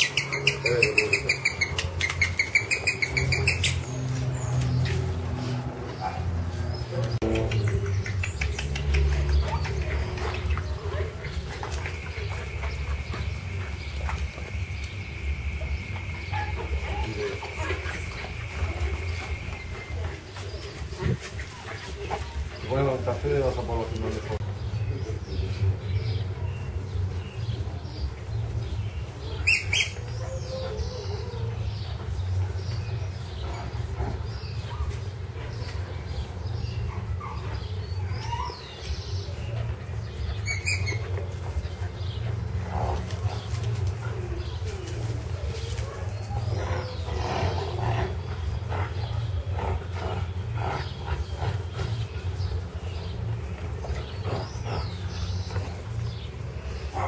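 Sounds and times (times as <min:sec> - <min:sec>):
puppies growling: 0:00.0 - 0:57.0
small birds chirping: 0:00.0 - 0:57.0.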